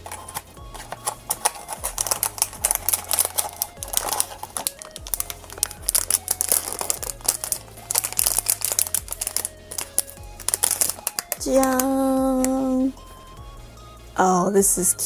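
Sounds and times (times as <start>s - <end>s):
plastic bag crinkling: 0.0s - 11.9s
music with low bass line: 0.0s - 15.0s.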